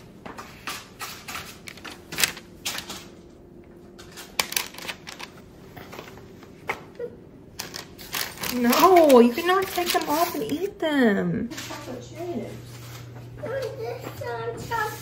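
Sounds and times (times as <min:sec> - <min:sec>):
parchment paper crinkling: 0:07.6 - 0:10.8.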